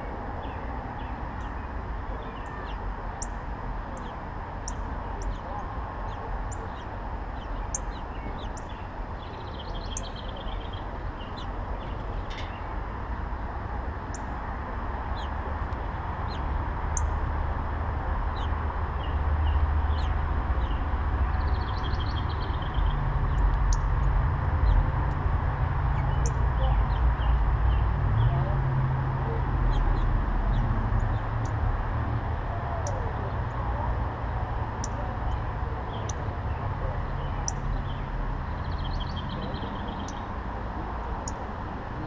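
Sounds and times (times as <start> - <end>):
small birds chirping: 0.0 - 12.8, 18.3 - 24.9, 32.7 - 42.0.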